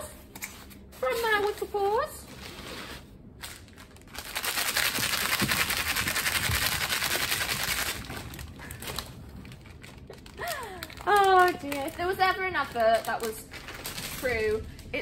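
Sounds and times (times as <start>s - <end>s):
plastic pouch torn and crinkled: 3.4s - 5.8s, 6.8s - 14.8s.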